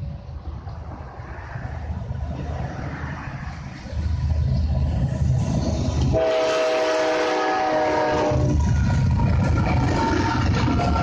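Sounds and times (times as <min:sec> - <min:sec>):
diesel locomotive engine rumble: 0:00.0 - 0:11.0
locomotive air horn blast: 0:06.1 - 0:08.5.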